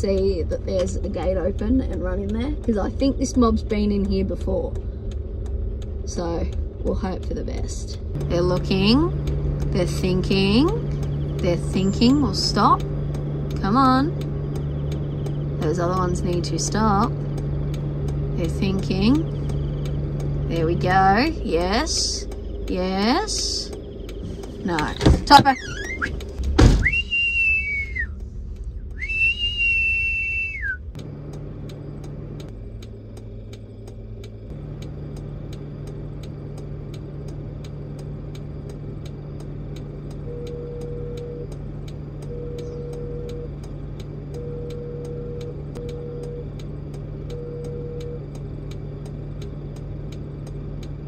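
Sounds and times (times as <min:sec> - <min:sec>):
faint regular ticking: 0:00.0 - 0:26.6, 0:28.1 - 0:29.2, 0:30.9 - 0:51.0
vehicle engine running: 0:00.0 - 0:51.0
long whistled commands: 0:26.8 - 0:28.2, 0:28.8 - 0:30.9.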